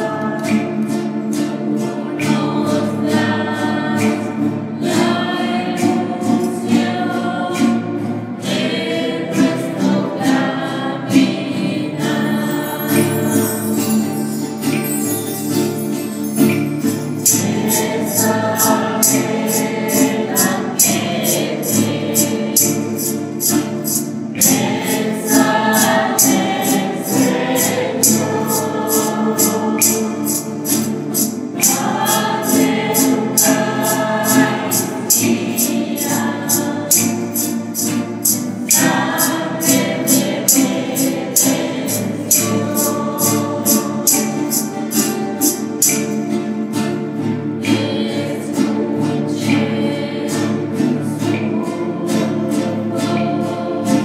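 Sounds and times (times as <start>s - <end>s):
choir singing a hymn: 0.0s - 54.0s
steady percussion beat: 12.3s - 48.2s.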